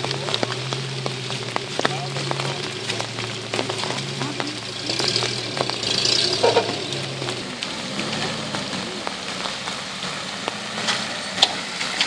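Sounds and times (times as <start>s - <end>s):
rain hissing: 0.0s - 12.0s
vehicle engines humming: 0.0s - 12.0s.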